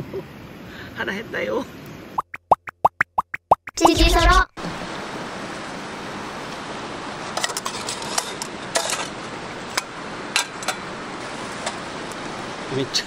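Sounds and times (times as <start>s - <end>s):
food sizzling over charcoal: 4.6s - 13.0s.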